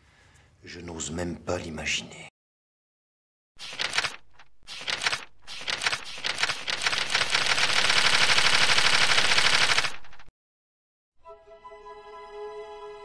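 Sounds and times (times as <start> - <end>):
fast mechanical rattle of clicks: 3.7 - 10.3.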